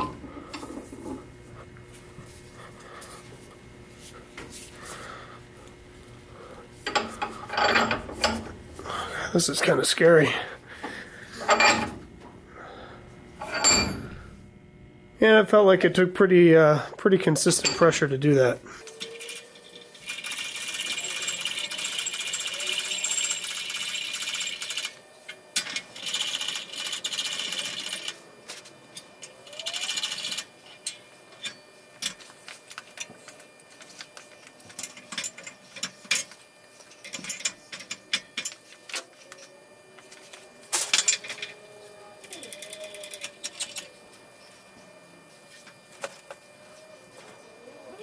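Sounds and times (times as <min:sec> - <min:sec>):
metal parts clicking: 0:42.2 - 0:43.9.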